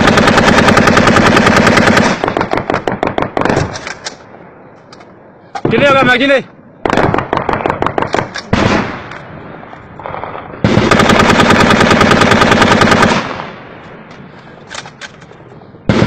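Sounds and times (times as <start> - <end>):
rifle firing automatic bursts: 0.0 - 3.9, 6.8 - 9.0, 10.0 - 13.5
rifle single shots: 6.8 - 9.3.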